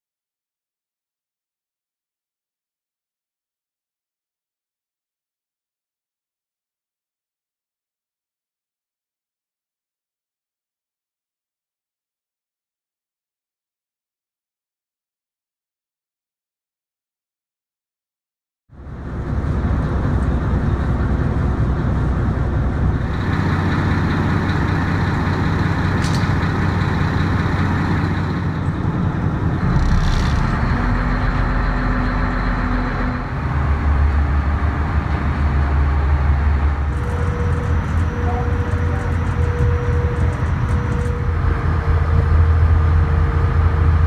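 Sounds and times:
heavy engines rumbling: 0:18.7 - 0:44.0.

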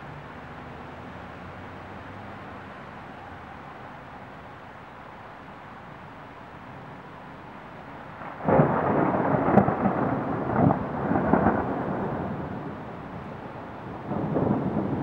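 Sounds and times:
thunder crack and rumble: 0:08.2 - 0:15.0.

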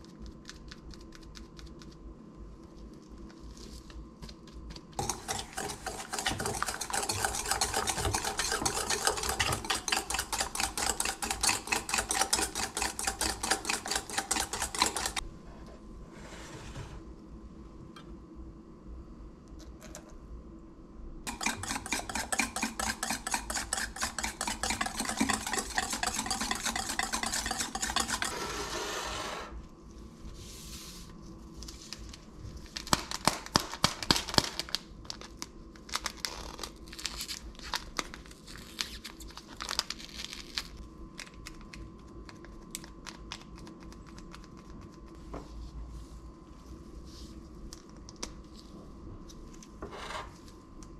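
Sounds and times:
wire whisk beating eggs in bowl: 0:04.3 - 0:15.2, 0:21.3 - 0:28.5
paper sachet crinkling and tearing: 0:34.6 - 0:41.4.

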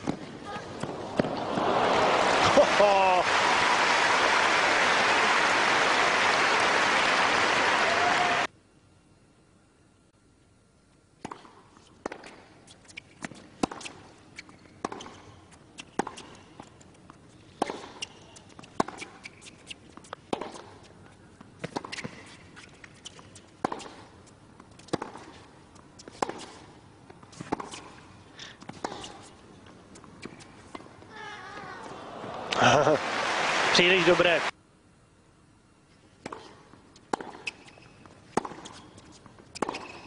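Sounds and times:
tennis racket hitting ball: 0:11.2 - 0:12.4, 0:13.2 - 0:14.0, 0:15.8 - 0:16.3, 0:17.6 - 0:20.8, 0:23.6 - 0:24.1, 0:24.8 - 0:25.4, 0:26.0 - 0:26.7, 0:27.3 - 0:28.0, 0:36.2 - 0:40.0.

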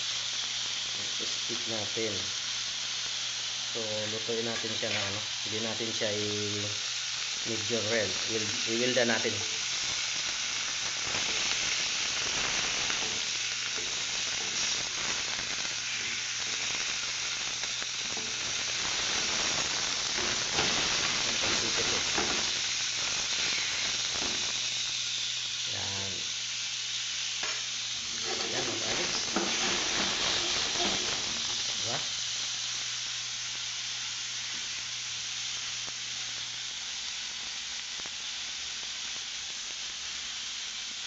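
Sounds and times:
steaks sizzling in a pan: 0:00.0 - 0:41.0.

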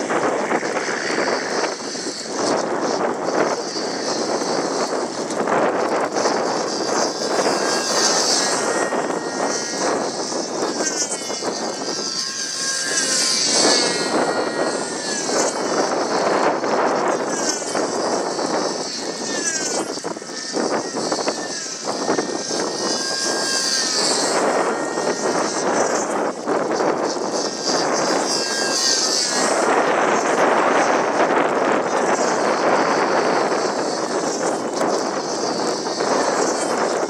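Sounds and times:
model airplane engine running: 0:00.0 - 0:37.0.

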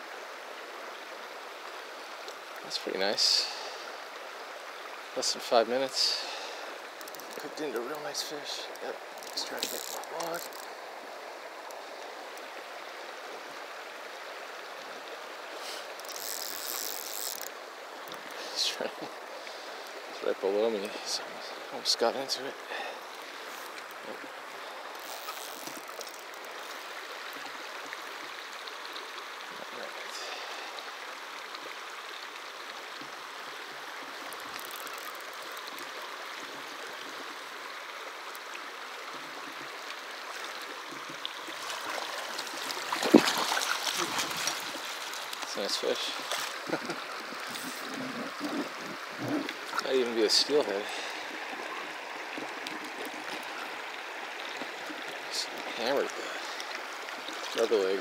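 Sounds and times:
river water rushing over rocks: 0:00.0 - 0:58.0
river rushing over rocks: 0:39.9 - 0:58.0.

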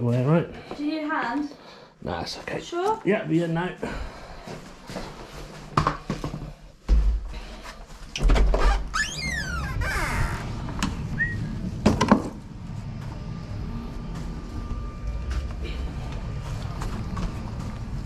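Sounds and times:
falling squeal: 0:08.9 - 0:11.6.

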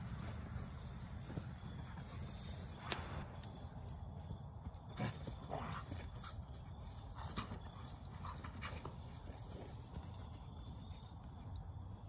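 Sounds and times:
faint clicks and scuffs: 0:00.0 - 0:12.0.

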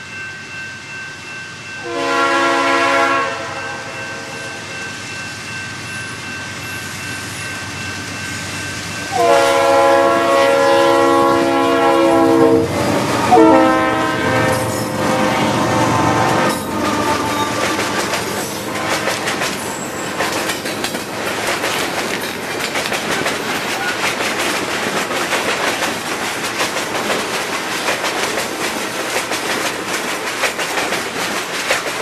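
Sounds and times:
train rumbling: 0:00.1 - 0:32.0
locomotive air horn blasts: 0:01.8 - 0:04.6, 0:09.1 - 0:18.0, 0:18.7 - 0:19.2.

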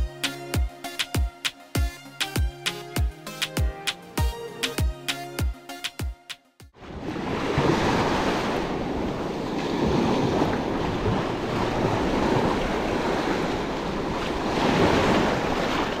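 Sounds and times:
small waves on sandy beach: 0:06.8 - 0:16.0.

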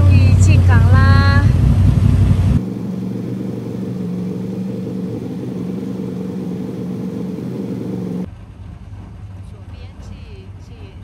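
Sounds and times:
boat engine running: 0:00.0 - 0:08.3.

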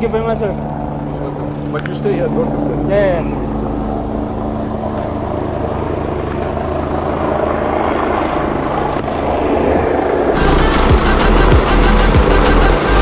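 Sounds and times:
helicopter rotor and engine: 0:00.0 - 0:13.0
low hum of ship engines: 0:00.0 - 0:13.0.

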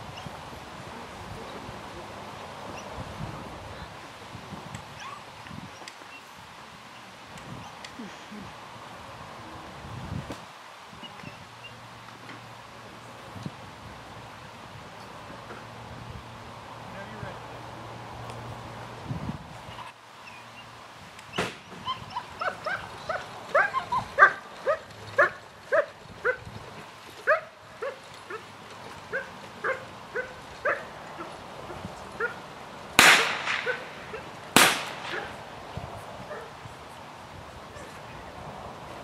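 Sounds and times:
dog barking and yelping: 0:21.8 - 0:26.4, 0:27.3 - 0:28.5, 0:29.1 - 0:31.4, 0:32.2 - 0:32.4, 0:33.6 - 0:34.3, 0:36.3 - 0:36.6
loud sharp bangs: 0:33.0 - 0:35.5.

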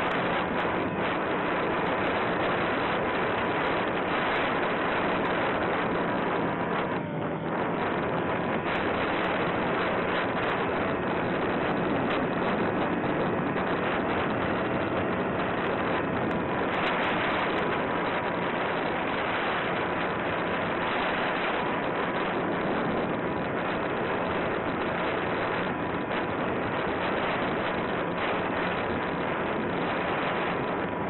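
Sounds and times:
wind rushing over microphone: 0:00.0 - 0:31.0.

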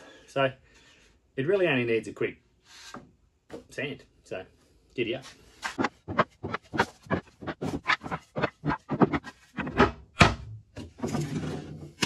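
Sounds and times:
wood scraping: 0:05.2 - 0:10.2
wooden boards knocking and clattering: 0:05.7 - 0:12.0.

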